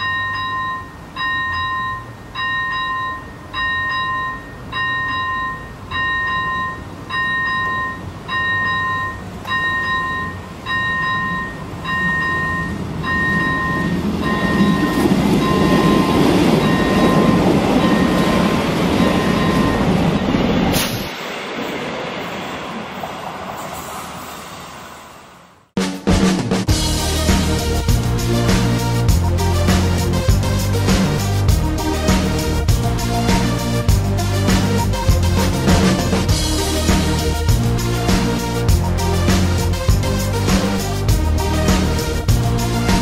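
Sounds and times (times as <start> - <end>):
level crossing bell dinging: 0.0 - 19.9
passing train rumble: 0.0 - 25.7, 26.6 - 43.0.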